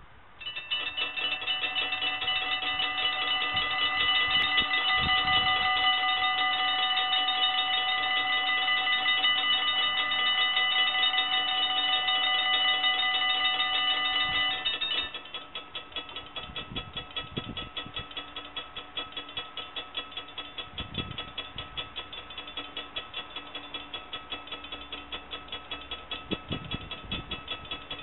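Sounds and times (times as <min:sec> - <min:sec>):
level crossing bells ringing: 0:00.4 - 0:16.4.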